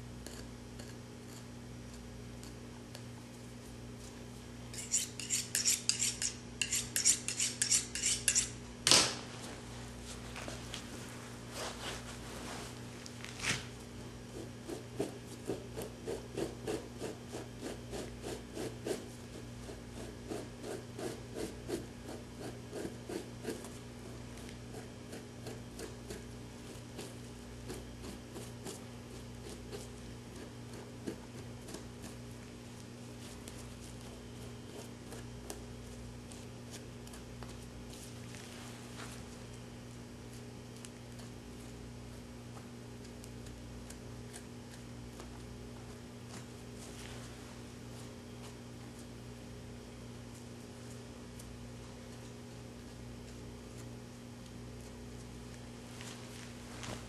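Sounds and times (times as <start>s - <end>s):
knife scraping hide: 4.7s - 8.6s.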